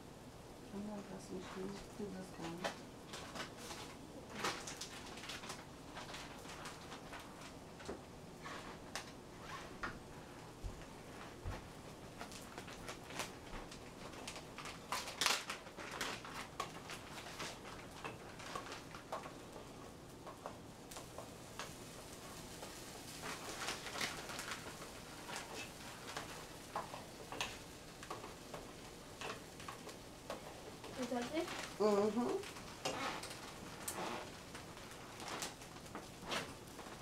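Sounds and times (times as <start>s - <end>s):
food crackling in a skillet: 0.0s - 37.0s
gas burner hiss: 16.4s - 37.0s.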